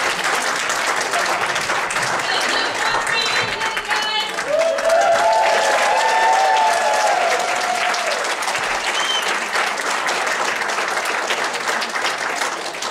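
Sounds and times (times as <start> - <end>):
people cheering: 0.0 - 10.0
audience applauding: 0.0 - 12.9.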